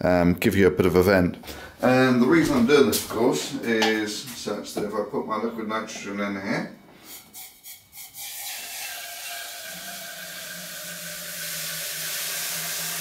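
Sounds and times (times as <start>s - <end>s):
liquid nitrogen hissing: 7.2s - 13.0s.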